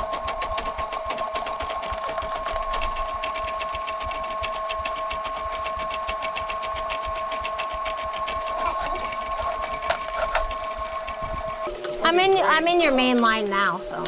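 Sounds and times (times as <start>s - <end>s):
rotating cable ticking: 0.0s - 11.7s
drain snake motor hum: 0.0s - 11.8s.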